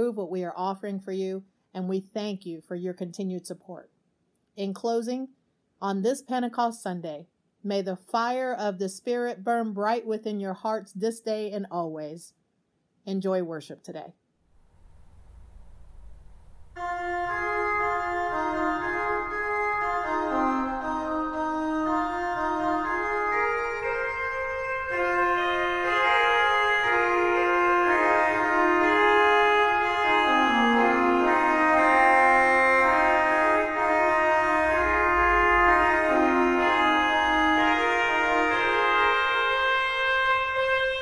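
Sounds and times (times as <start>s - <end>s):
organ chords: 15.0s - 41.0s.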